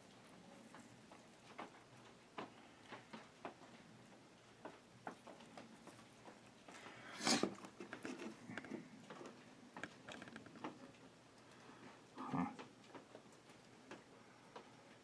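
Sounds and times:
scrape: 0:06.9 - 0:08.4.

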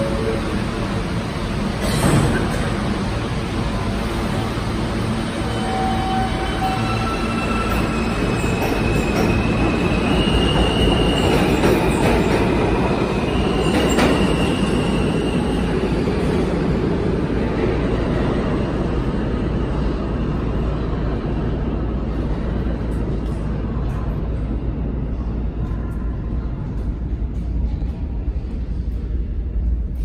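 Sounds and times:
subway wheels rumbling on track: 0:00.0 - 0:30.0.

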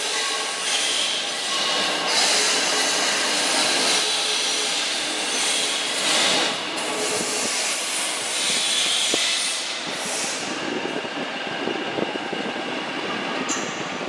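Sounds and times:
train wheels running on rails: 0:00.0 - 0:14.0.

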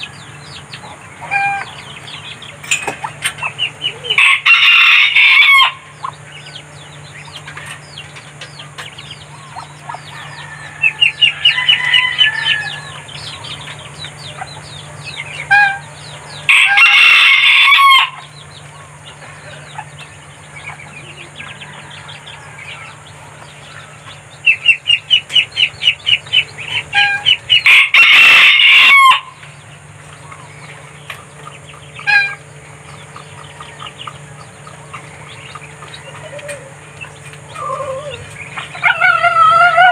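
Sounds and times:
rooster crowing: 0:04.0 - 0:06.0, 0:09.5 - 0:13.6, 0:15.4 - 0:18.5, 0:21.0 - 0:24.0, 0:27.0 - 0:29.4, 0:37.5 - 0:39.9
rapid clucks: 0:29.3 - 0:38.9.

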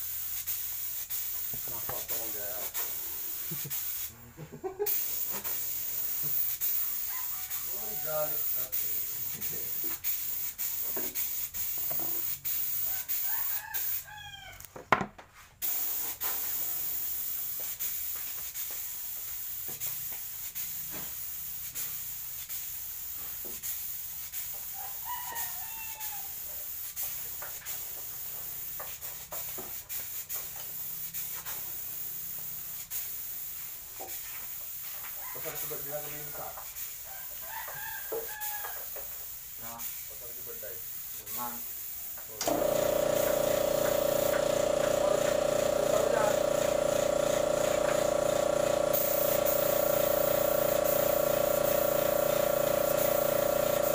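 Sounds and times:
rooster crowing: 0:07.0 - 0:08.4, 0:12.8 - 0:14.7, 0:24.7 - 0:26.4, 0:37.1 - 0:38.9.

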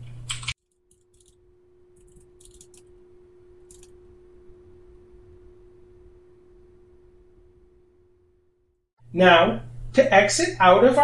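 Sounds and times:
faint steady hum: 0:00.0 - 0:11.0
keyboard keystrokes: 0:02.0 - 0:02.9, 0:03.6 - 0:03.9.

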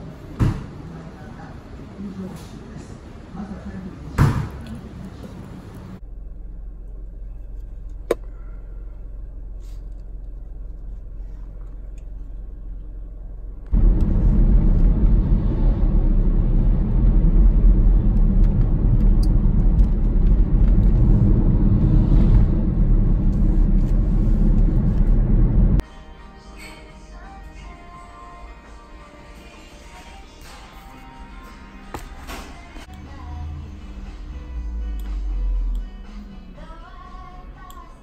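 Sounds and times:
road and engine rumble: 0:01.0 - 0:25.8, 0:32.8 - 0:37.7
car engine hum: 0:05.2 - 0:25.8.

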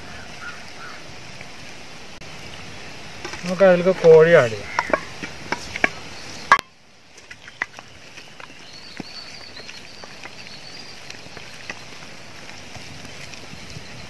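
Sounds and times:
hand squishing wet mixture: 0:07.1 - 0:13.6
faint high chirping: 0:07.4 - 0:12.0.

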